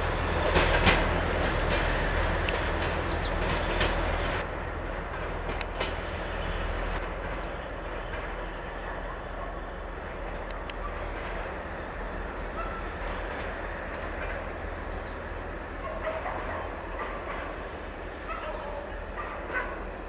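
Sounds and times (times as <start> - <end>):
diesel train rumbling on rails: 0.0 - 20.0.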